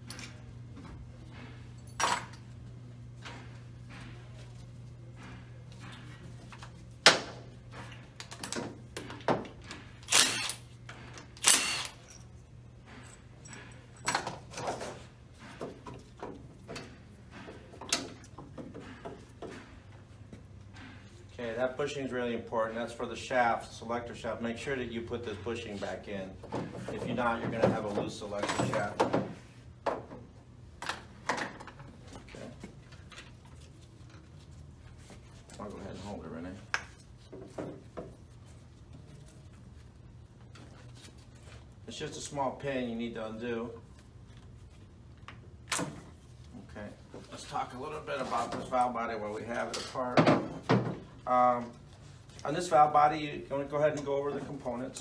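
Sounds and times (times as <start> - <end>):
cordless power tool whirring: 10.1 - 10.6, 11.4 - 12.0.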